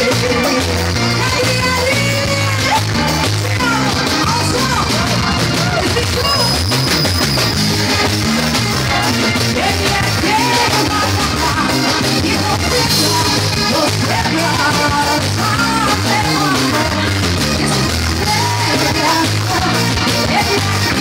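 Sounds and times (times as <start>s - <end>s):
live pop-rock band: 0.0s - 21.0s
person singing lead: 8.7s - 21.0s.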